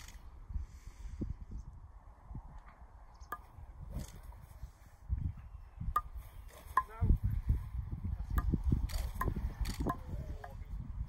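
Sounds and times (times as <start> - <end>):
wind on microphone: 0.0 - 11.0.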